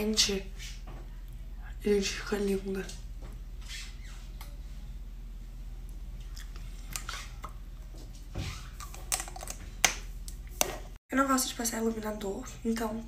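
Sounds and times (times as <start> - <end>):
steady low hum: 0.0 - 8.8.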